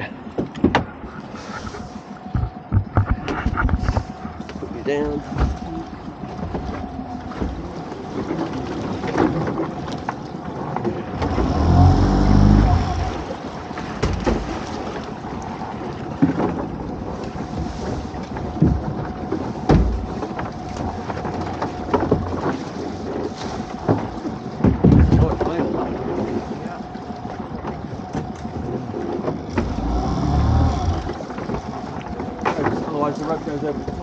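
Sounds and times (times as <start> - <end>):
boat engine hum: 0.0 - 34.0.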